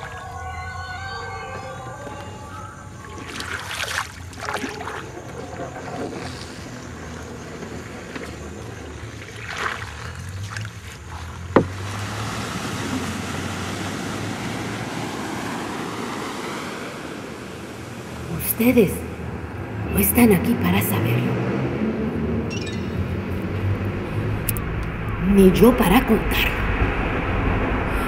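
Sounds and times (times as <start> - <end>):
wash of noise: 2.1 - 28.0
low hum: 18.2 - 28.0.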